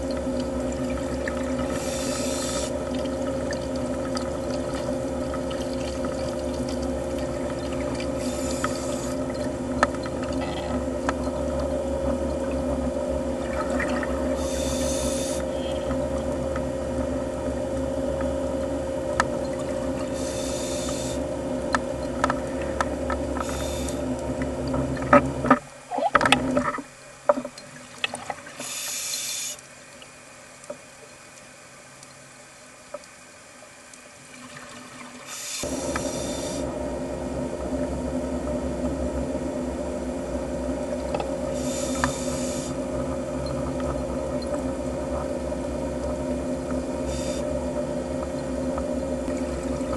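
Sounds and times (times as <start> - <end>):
scuba exhaust bubbles hissing: 0.0 - 25.5, 28.1 - 29.8, 34.7 - 49.9
low underwater hum: 0.0 - 49.9.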